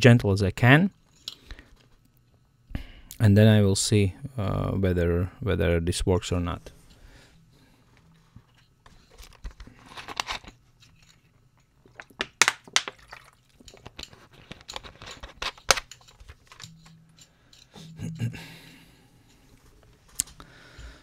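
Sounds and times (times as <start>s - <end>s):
flashlight threads clicking and scraping: 13.6s - 17.9s, 19.2s - 20.9s.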